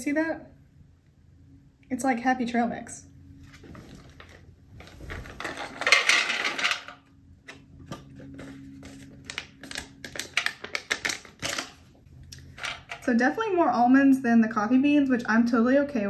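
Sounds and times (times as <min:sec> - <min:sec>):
nuts rattling into a metal tray: 0:05.3 - 0:07.0.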